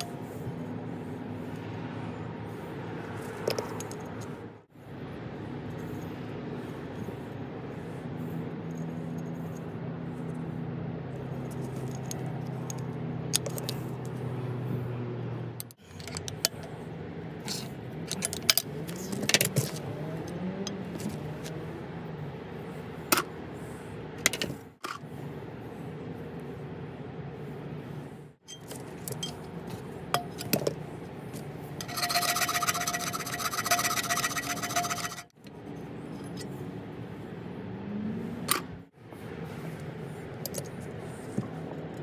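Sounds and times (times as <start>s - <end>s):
steady low hum: 0.0s - 42.0s
metal parts clinking: 28.4s - 30.8s, 31.8s - 36.5s.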